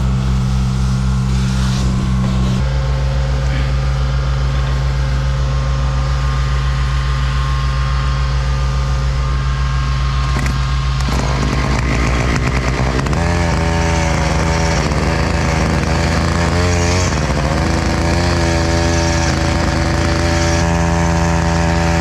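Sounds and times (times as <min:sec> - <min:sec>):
truck engine and vacuum pump running: 0:00.0 - 0:22.0
starter cord pulled on small engine: 0:10.4 - 0:22.0.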